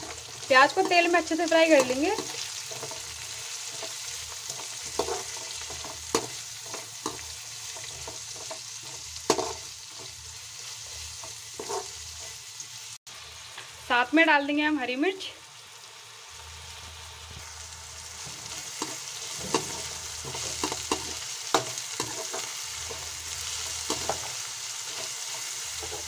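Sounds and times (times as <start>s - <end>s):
spoon knocking and scraping pan: 0.0s - 12.4s, 18.2s - 26.0s
onions sizzling in oil: 0.0s - 26.0s.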